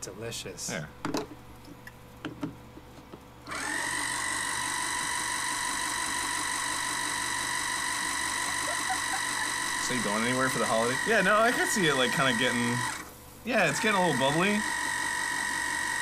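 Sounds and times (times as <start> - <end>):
small motor whining: 3.5 - 16.0.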